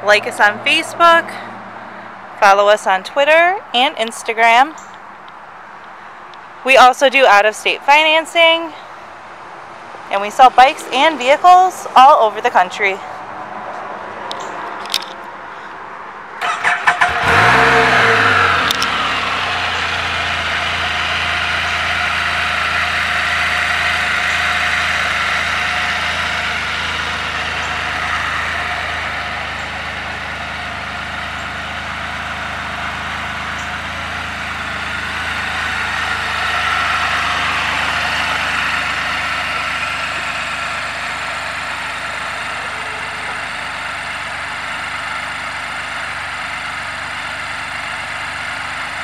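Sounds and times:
engine starter cranking: 0:16.4 - 0:20.8
engine idling: 0:16.4 - 0:49.0.

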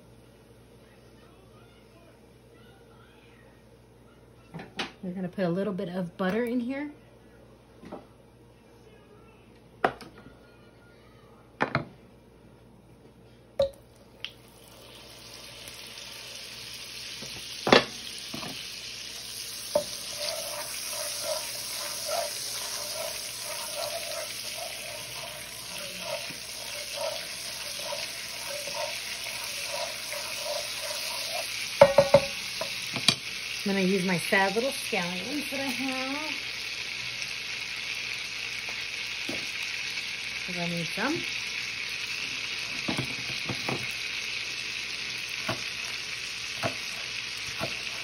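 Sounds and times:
butter sizzling in a skillet: 0:14.2 - 0:48.0
wooden spatula scraping a pan: 0:19.4 - 0:32.8.

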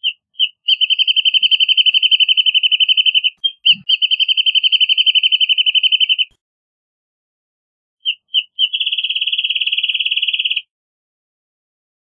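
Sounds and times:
bird singing whistled trill: 0:00.0 - 0:06.3, 0:08.0 - 0:10.7.

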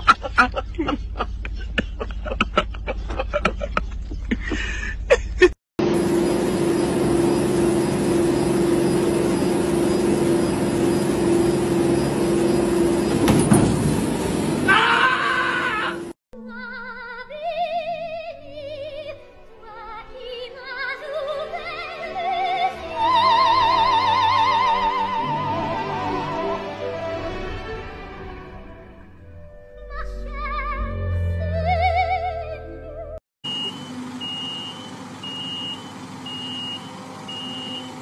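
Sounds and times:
treadmill motor hum and belt: 0:05.8 - 0:14.9, 0:33.5 - 0:38.0
operatic singing with vibrato: 0:15.8 - 0:28.5.

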